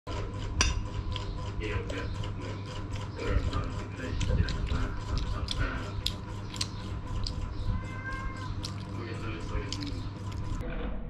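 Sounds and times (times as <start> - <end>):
steady low hum: 0.1 - 11.0
chewing smacks: 1.1 - 7.5, 8.4 - 10.6.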